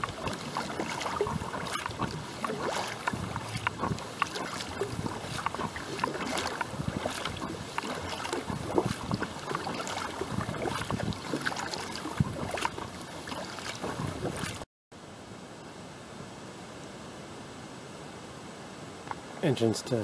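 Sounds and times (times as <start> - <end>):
wind on microphone: 0.0 - 14.6
paddle dipping in water: 0.0 - 14.7.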